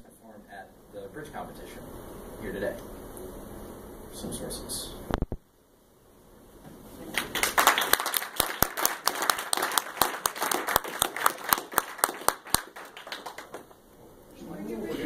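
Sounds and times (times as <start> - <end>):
audience applauding: 7.1 - 13.8.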